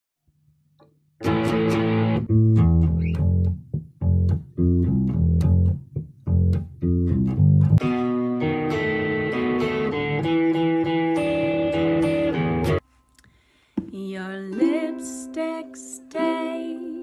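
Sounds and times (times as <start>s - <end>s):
electric guitar rock riff: 1.2s - 3.4s, 6.3s - 12.8s
electric bass: 1.2s - 12.8s.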